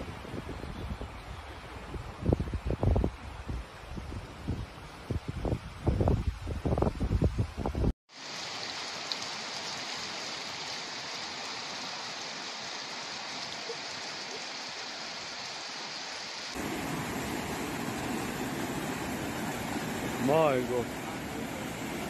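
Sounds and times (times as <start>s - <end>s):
floodwater rushing: 8.1s - 22.0s
heavy rain: 8.1s - 22.0s.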